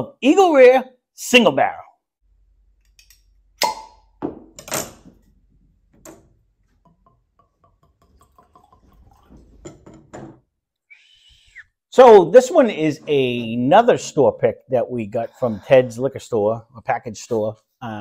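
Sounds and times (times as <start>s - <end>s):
cork pops from bottle: 3.6s - 4.1s
liquid glugging into glass: 6.9s - 10.3s.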